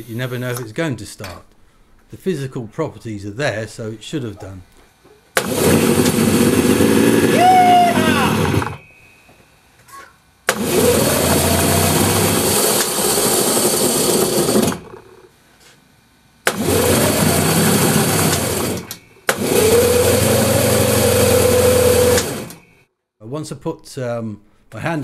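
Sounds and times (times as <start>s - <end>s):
two-stroke engine running: 5.4s - 8.8s, 10.5s - 15.2s, 16.5s - 22.6s.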